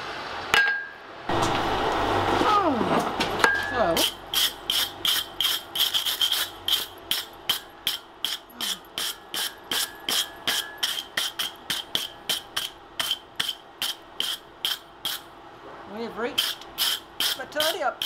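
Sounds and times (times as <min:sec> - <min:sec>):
hammer striking hot iron on anvil: 0:06.7 - 0:15.2.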